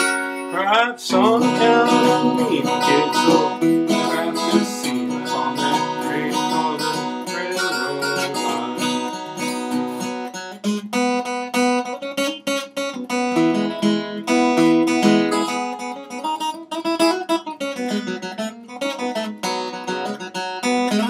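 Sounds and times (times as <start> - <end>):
acoustic guitar bluegrass tune: 0.0 - 21.0.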